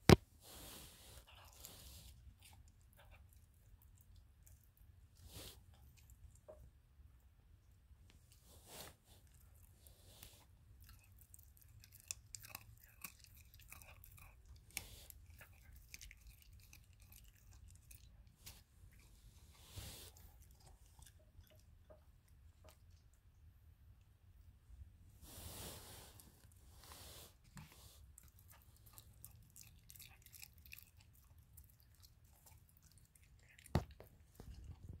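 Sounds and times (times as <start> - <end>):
puppy chewing bones wetly: 10.8 - 19.5, 28.2 - 35.0.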